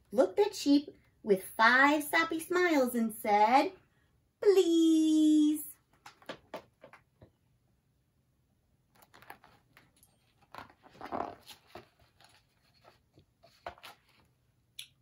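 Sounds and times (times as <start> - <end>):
paper pages rustling: 8.9 - 14.4.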